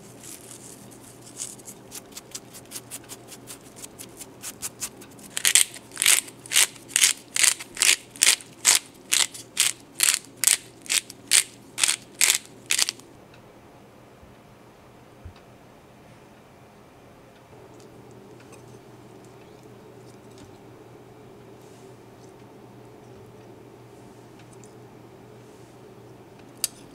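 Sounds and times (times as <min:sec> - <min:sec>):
pepper mill grinding: 0:00.0 - 0:13.0.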